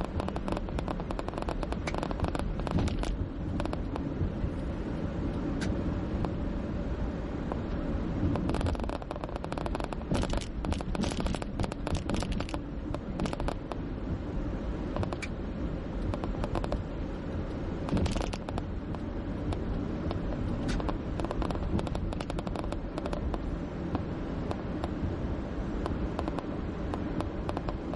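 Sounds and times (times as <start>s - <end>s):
rapid crackling clicks: 0.0s - 4.1s, 8.3s - 13.8s, 15.0s - 15.3s, 16.0s - 16.8s, 17.9s - 25.0s, 25.8s - 27.9s
car road and engine rumble: 0.0s - 27.9s.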